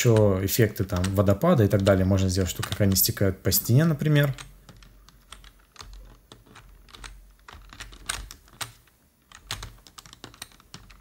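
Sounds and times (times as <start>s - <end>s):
computer keyboard keys clicking: 0.2s - 3.1s, 4.2s - 11.0s.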